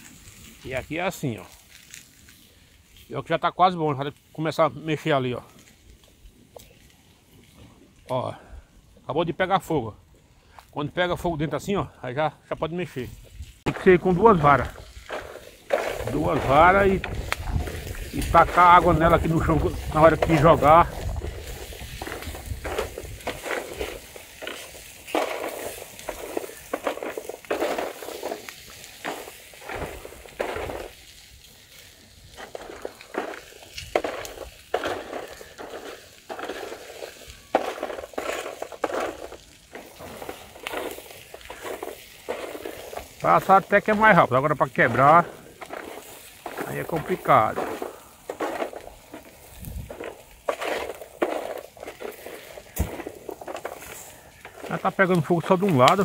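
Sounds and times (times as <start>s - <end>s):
shells sizzling and crackling: 0.0s - 9.0s, 9.6s - 56.0s.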